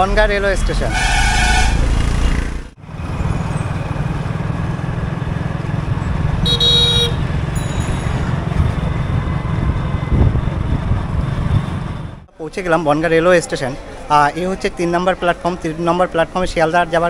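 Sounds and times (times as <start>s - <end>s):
road vehicle running: 0.0s - 12.3s
horn honking: 0.8s - 2.0s, 6.4s - 7.4s.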